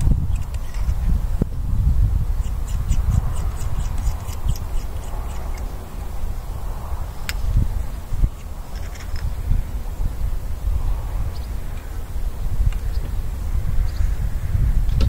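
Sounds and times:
air rifle breech clicks: 0:00.0 - 0:01.0
wind rumbling on microphone: 0:00.0 - 0:15.0.

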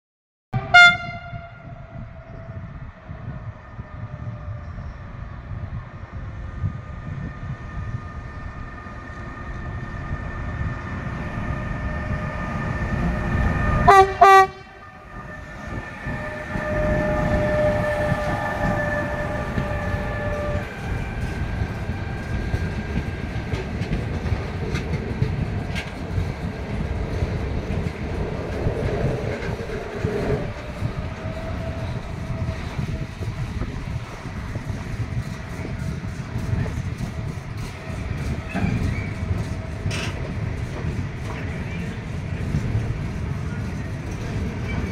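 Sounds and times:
train horn: 0:00.6 - 0:02.2, 0:13.8 - 0:20.6
locomotive rumble: 0:00.6 - 0:44.9
wagons rumbling and clattering: 0:16.2 - 0:44.9.

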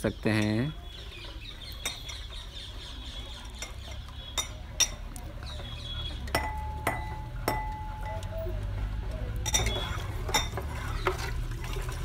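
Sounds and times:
spoon stirring liquid in pot: 0:00.4 - 0:12.0
spoon clinking on metal pot: 0:01.8 - 0:02.3, 0:03.5 - 0:05.1, 0:06.3 - 0:08.3, 0:09.4 - 0:11.2.

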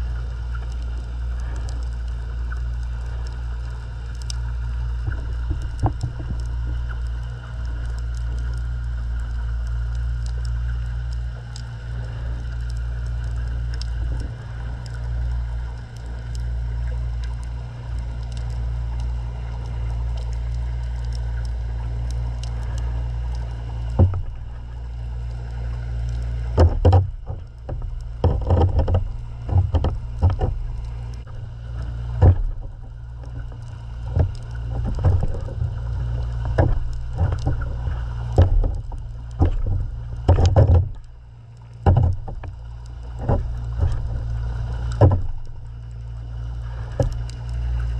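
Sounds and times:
muffled underwater rumble: 0:00.0 - 0:47.9
sharp knocks and thumps: 0:05.0 - 0:06.5, 0:24.0 - 0:24.5, 0:26.6 - 0:30.6, 0:32.1 - 0:32.8, 0:34.1 - 0:35.6, 0:36.4 - 0:37.8, 0:38.4 - 0:41.0, 0:41.8 - 0:42.5, 0:45.0 - 0:45.4.

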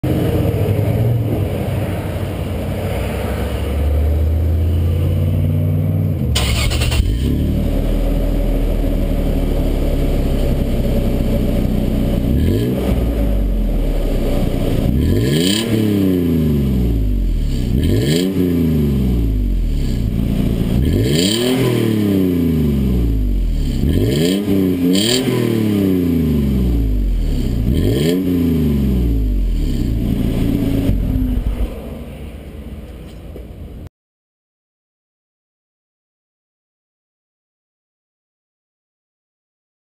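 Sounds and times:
truck engine idling and revving: 0:00.0 - 0:33.9.

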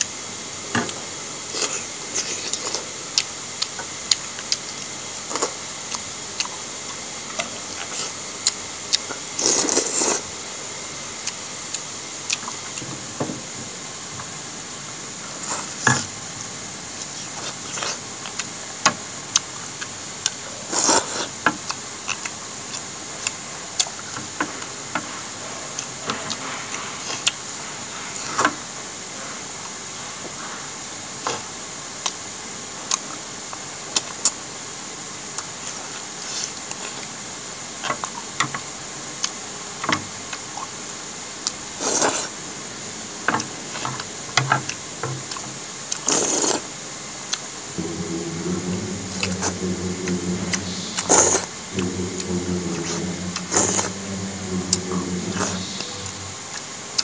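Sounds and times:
steady hiss: 0:41.7 - 0:57.0
mouth sounds of eating: 0:45.3 - 0:46.7, 0:47.3 - 0:56.6.

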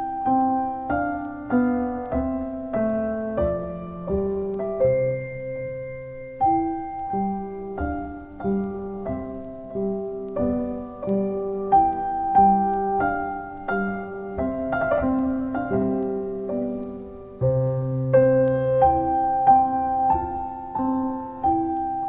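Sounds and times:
slow piano music: 0:00.0 - 0:22.0.

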